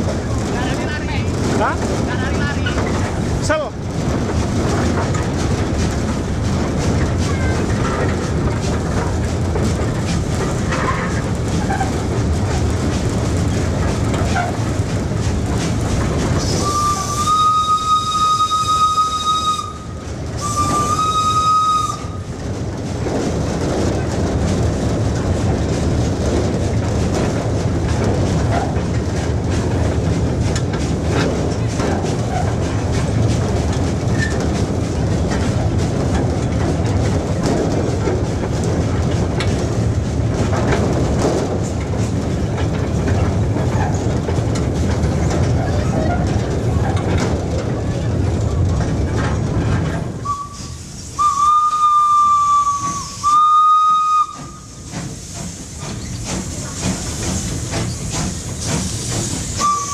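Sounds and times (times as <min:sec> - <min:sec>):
steam locomotive rumble and rattle: 0:00.0 - 0:59.9
steam whistle blowing: 0:16.5 - 0:22.2, 0:50.2 - 0:54.8, 0:59.6 - 0:59.9.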